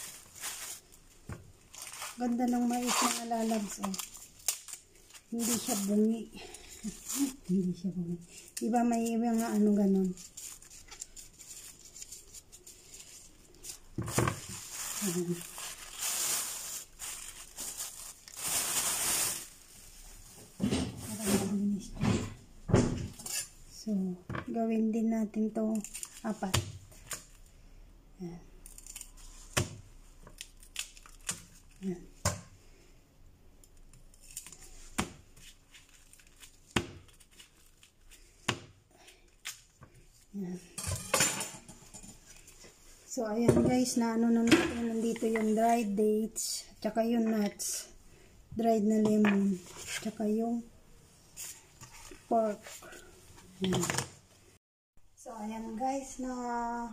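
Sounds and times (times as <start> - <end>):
plastic bag crinkling: 0.0 - 20.4.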